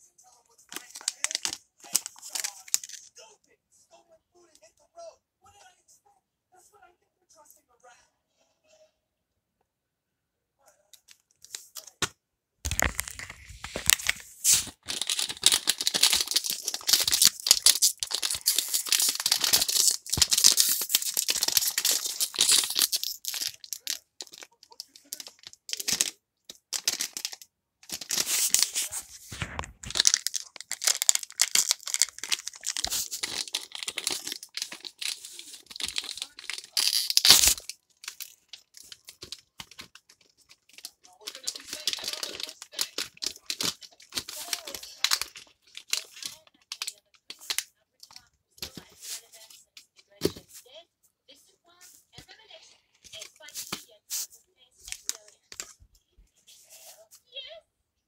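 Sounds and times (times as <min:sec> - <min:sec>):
foil bag crinkling and tearing: 0:00.7 - 0:03.0, 0:12.7 - 0:26.1, 0:26.8 - 0:47.6.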